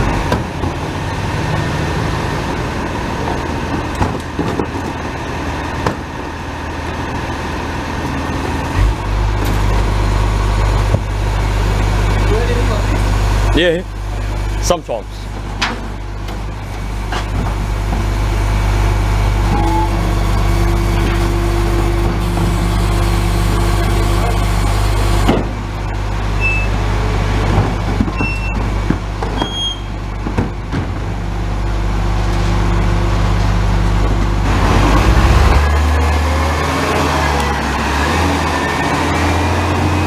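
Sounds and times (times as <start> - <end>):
garbage truck diesel engine: 0.0 - 40.0
bins clattering and knocking: 27.4 - 29.6.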